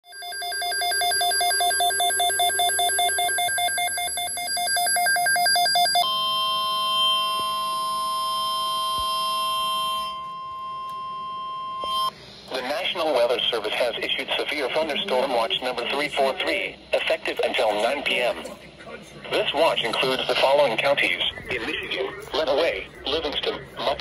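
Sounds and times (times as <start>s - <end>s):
warbling two-pitch alarm: 0.0s - 12.1s
steady high alert tone: 0.1s - 12.9s.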